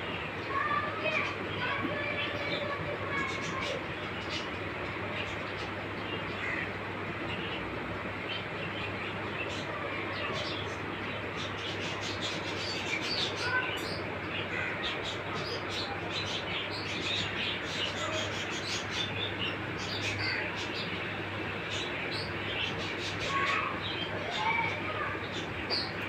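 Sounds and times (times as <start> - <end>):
small birds chirping: 0.0 - 26.0.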